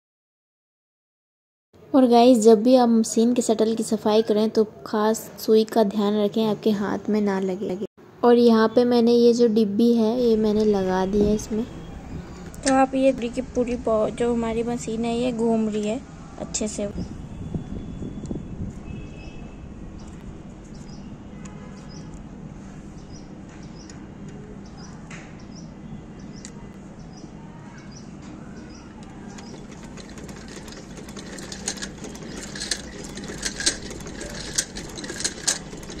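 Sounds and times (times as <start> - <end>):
sewing machine clicks: 29.0 - 36.0
sewing machine running: 29.1 - 36.0.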